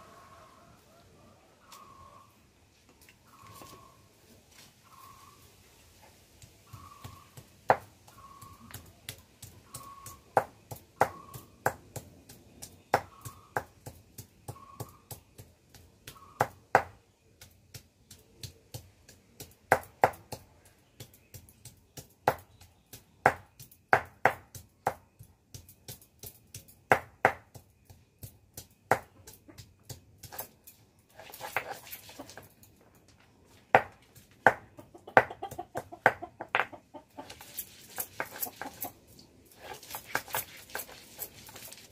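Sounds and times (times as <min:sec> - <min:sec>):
bird chirping: 0:00.0 - 0:02.5, 0:03.1 - 0:04.2, 0:04.8 - 0:05.9, 0:06.5 - 0:11.6, 0:12.5 - 0:17.5
stone pestle knocking on stone: 0:06.7 - 0:30.5, 0:33.7 - 0:36.8, 0:38.0 - 0:38.8.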